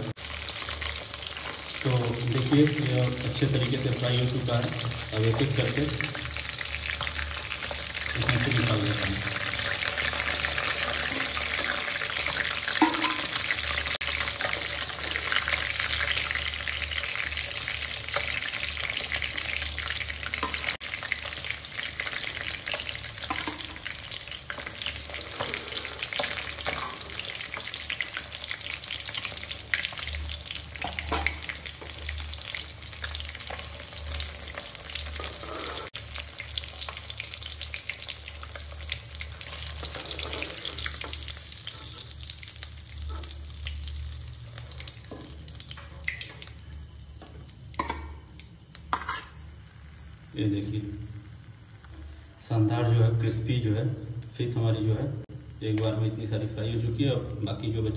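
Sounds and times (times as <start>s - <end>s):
fish frying in hot oil: 0.0s - 57.9s
steel spatula scraping a pan: 24.5s - 27.6s, 33.5s - 36.0s, 39.4s - 42.2s, 48.9s - 49.4s.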